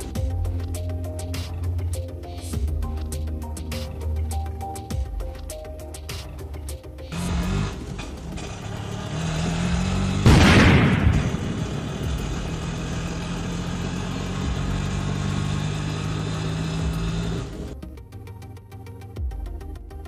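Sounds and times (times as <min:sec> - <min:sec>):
auto-rickshaw engine running: 0:00.0 - 0:19.4
loud noisy burst: 0:10.2 - 0:12.3.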